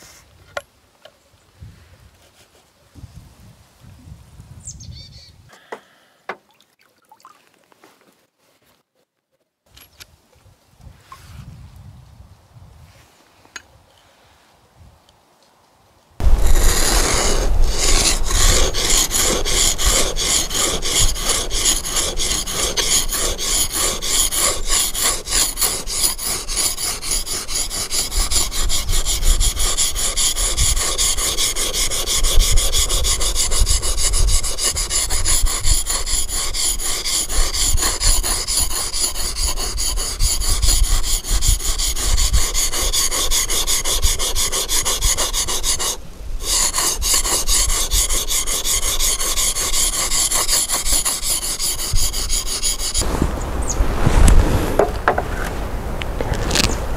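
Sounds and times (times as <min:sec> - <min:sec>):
chisel scraping on whetstone: 0:16.2 - 0:53.1.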